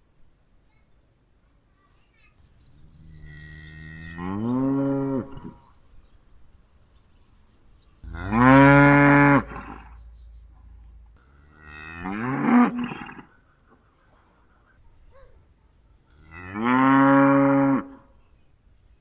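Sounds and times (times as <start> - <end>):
cows mooing: 3.1 - 5.6, 8.0 - 10.0, 11.2 - 13.4, 16.2 - 18.0
faint low rumble: 8.0 - 12.4.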